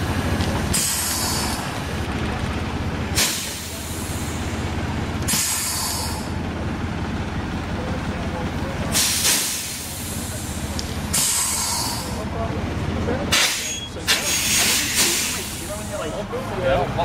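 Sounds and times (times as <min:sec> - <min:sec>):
bus diesel engine running: 0:00.0 - 0:17.0
air brake hiss: 0:00.7 - 0:01.6, 0:03.2 - 0:04.4, 0:05.3 - 0:06.3, 0:09.0 - 0:10.4, 0:11.1 - 0:12.2, 0:13.3 - 0:16.0.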